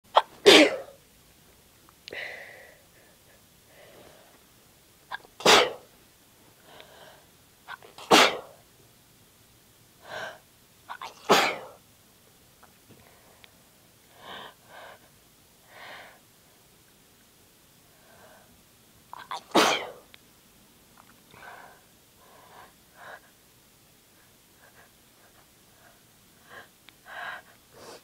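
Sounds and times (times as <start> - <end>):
woman sneezing: 0.2 - 1.0, 5.1 - 5.9, 7.7 - 8.6, 10.9 - 11.8, 19.2 - 20.0
soft breaths: 2.0 - 4.6, 6.4 - 7.5, 10.0 - 10.6, 12.6 - 16.9, 17.7 - 18.8, 21.0 - 28.0.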